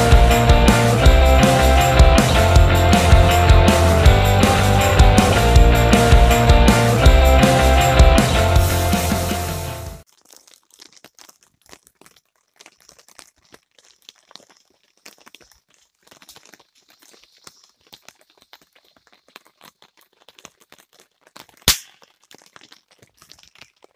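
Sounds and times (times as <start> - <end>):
firework fizzing and crackling: 12.6 - 23.1.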